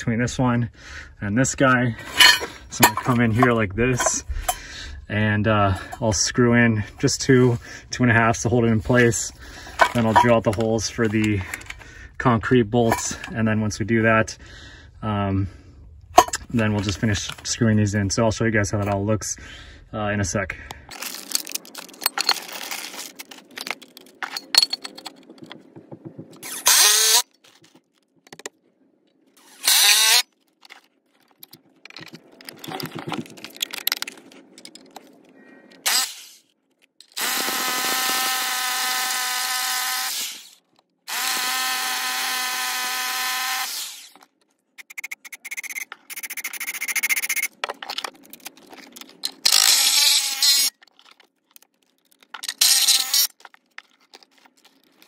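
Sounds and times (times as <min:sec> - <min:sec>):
impact driver driving screws: 0:26.4 - 0:27.2, 0:29.4 - 0:30.3, 0:35.9 - 0:36.4, 0:37.2 - 0:44.2, 0:49.4 - 0:50.7, 0:52.5 - 0:53.4
rotary hammer drilling concrete: 0:26.4 - 0:27.2, 0:29.4 - 0:30.3, 0:35.8 - 0:36.4, 0:37.2 - 0:44.2, 0:49.4 - 0:50.7, 0:52.6 - 0:53.4.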